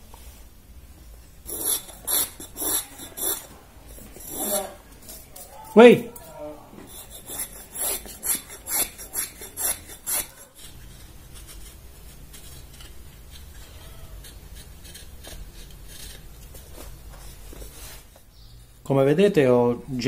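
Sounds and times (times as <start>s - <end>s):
knife whittling wood: 1.4s - 18.1s
hand plane shaving wood: 6.8s - 16.2s.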